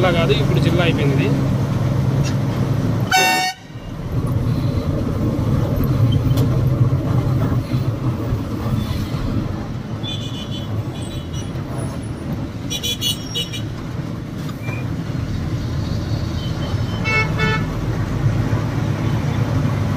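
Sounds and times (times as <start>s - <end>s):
vehicle horn toot: 3.1s - 3.8s, 16.4s - 17.7s.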